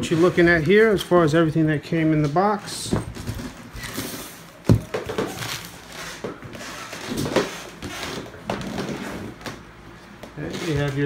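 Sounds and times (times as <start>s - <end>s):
plastic packaging rustling: 2.5s - 9.7s.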